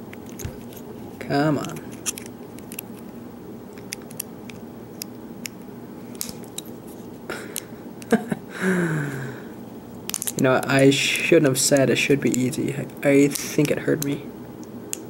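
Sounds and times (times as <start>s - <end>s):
person humming with effort: 7.3s - 9.5s.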